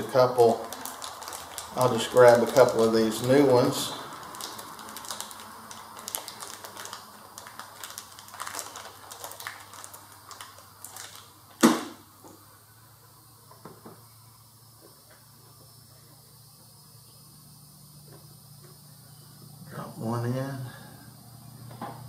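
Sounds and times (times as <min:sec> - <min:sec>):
sharp knock: 0:11.6 - 0:12.0.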